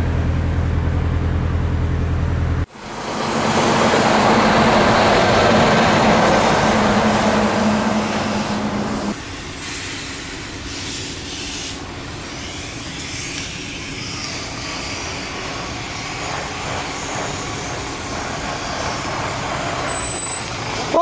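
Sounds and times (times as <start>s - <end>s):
truck diesel engine: 0.0s - 9.2s.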